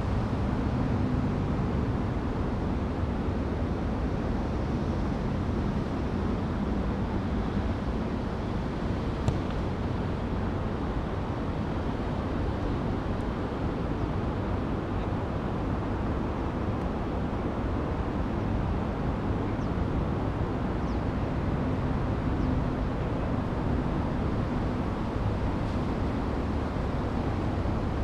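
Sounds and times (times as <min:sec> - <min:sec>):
low outdoor rumble: 0:00.0 - 0:28.0.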